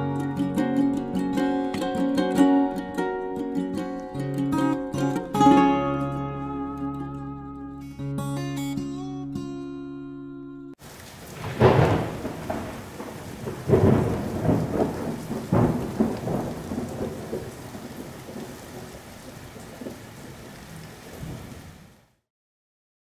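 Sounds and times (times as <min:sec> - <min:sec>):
steady rain: 0:10.8 - 0:22.2
thunder rolling: 0:11.1 - 0:21.6.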